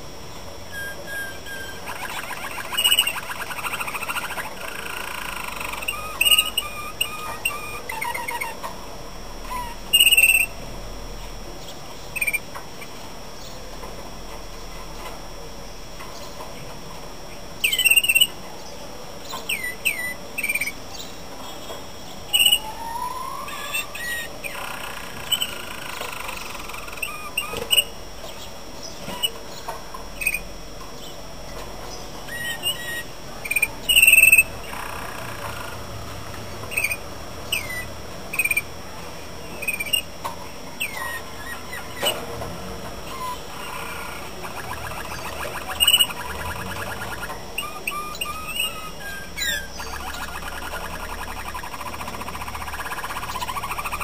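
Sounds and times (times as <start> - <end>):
canary rolling song: 0.0 - 13.7, 16.1 - 54.0
canaries chirping: 0.7 - 8.7, 9.4 - 10.6, 17.6 - 18.4, 19.2 - 30.5, 31.8 - 36.0, 36.6 - 38.7, 39.5 - 40.1, 40.7 - 54.0.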